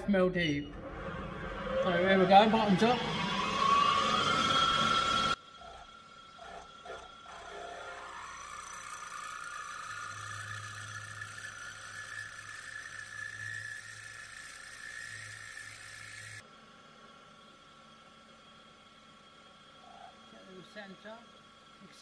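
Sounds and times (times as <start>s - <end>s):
drill motor hum and whine: 0.7s - 16.5s.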